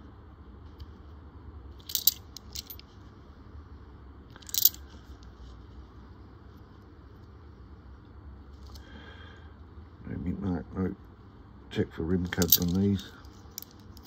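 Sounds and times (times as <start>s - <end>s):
coins clinking: 1.8s - 2.8s, 4.4s - 4.8s, 12.3s - 12.9s.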